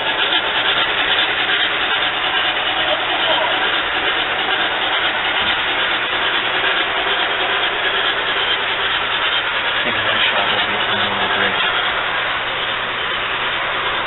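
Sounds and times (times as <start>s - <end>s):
low hum: 0.0s - 14.0s
model train rolling on track: 0.0s - 14.0s.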